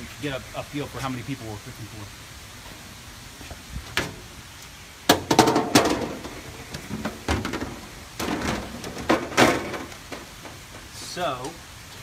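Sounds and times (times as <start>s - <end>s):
objects knocking and clattering: 5.1s - 11.1s.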